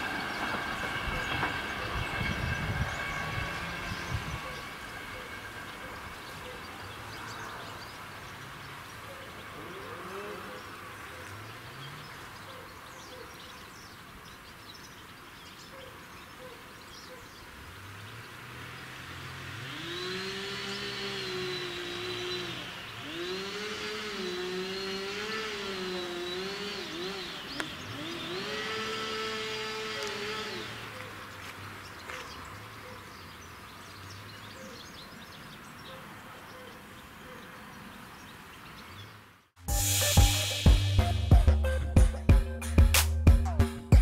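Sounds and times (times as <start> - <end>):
engine revving: 0.0 - 7.9, 9.4 - 12.3, 17.7 - 31.4.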